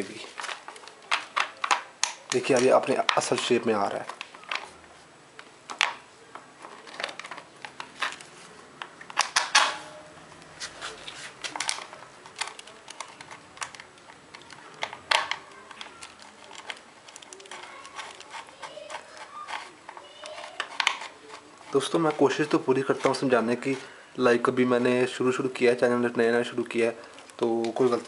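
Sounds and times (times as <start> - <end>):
small parts clicking and tapping: 0.4 - 4.7, 5.4 - 9.8, 11.4 - 23.3.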